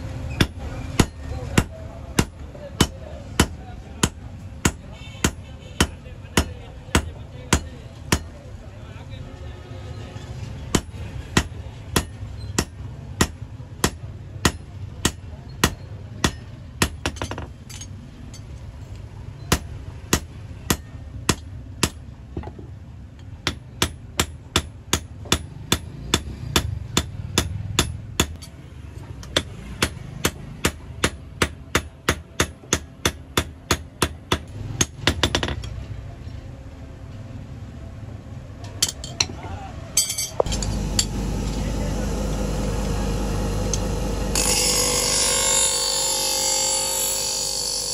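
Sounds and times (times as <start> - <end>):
hammer striking metal on anvil: 10.7 - 17.8, 40.0 - 46.1.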